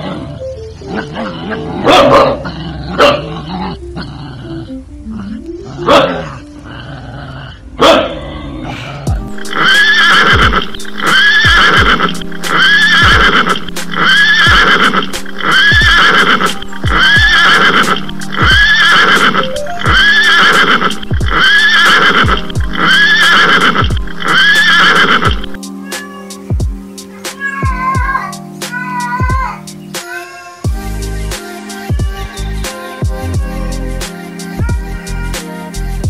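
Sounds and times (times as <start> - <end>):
horse neighing: 1.0 - 26.2
music with kick-drum beat: 9.1 - 9.6, 10.3 - 10.8, 11.4 - 17.4, 18.1 - 18.8, 20.9 - 22.8, 23.8 - 24.2, 26.4 - 27.0, 27.6 - 29.8, 30.7 - 35.0.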